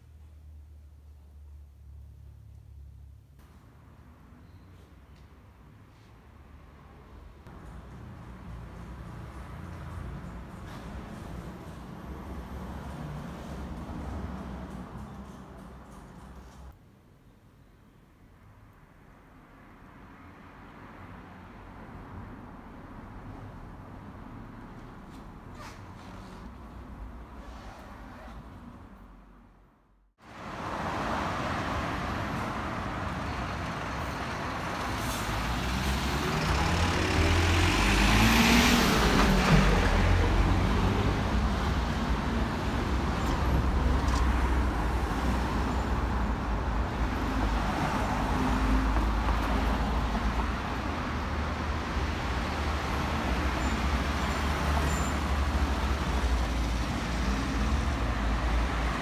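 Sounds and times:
city street traffic: 0:00.0 - 0:59.0.

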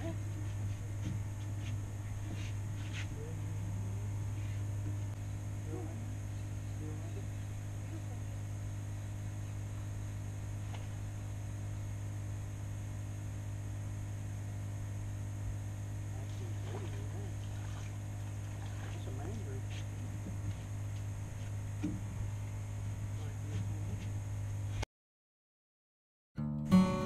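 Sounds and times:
steady low hum: 0:00.0 - 0:24.8.

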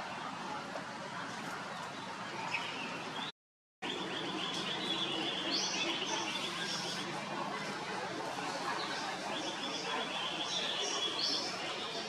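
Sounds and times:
birds chirping: 0:01.7 - 0:07.1, 0:08.8 - 0:12.0.

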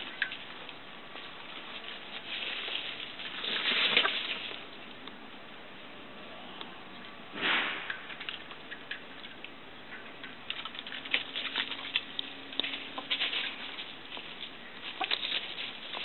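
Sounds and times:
chickens scratching on gravel: 0:00.0 - 0:05.0, 0:10.5 - 0:16.0.

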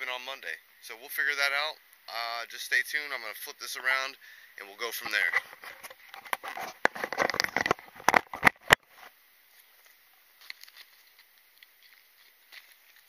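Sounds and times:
camera handling noise: 0:05.4 - 0:08.8.

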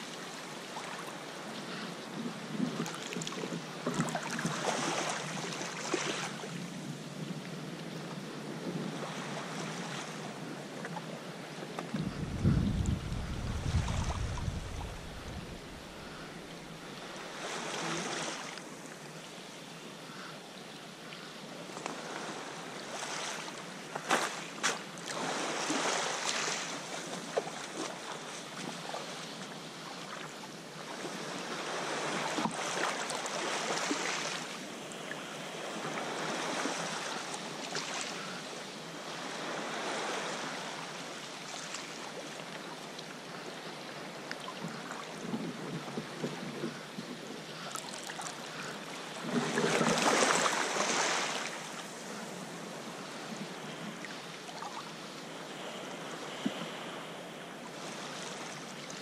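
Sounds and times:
sea swell surging over rocks: 0:11.9 - 0:17.1.

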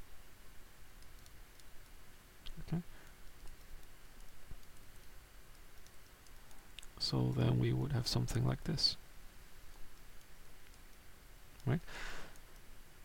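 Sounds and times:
computer mouse clicks: 0:01.0 - 0:01.9, 0:03.4 - 0:07.0.

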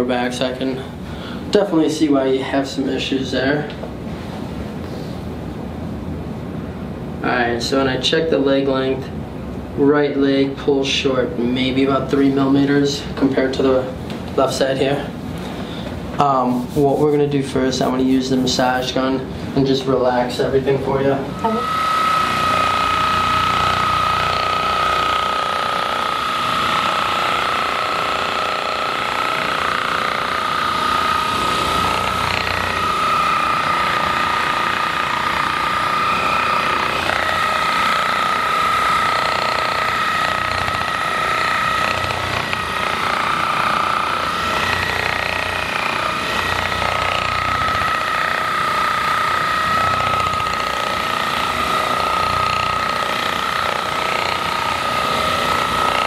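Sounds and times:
massage gun motor whining and rattling: 0:21.4 - 0:56.0.

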